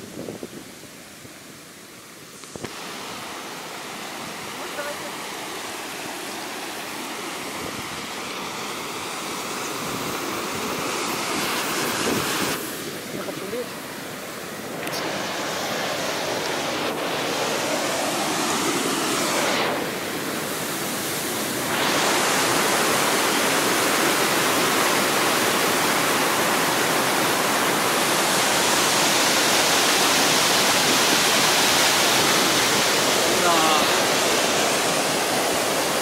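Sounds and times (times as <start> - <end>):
waterfall rushing and crashing: 0.0 - 36.0.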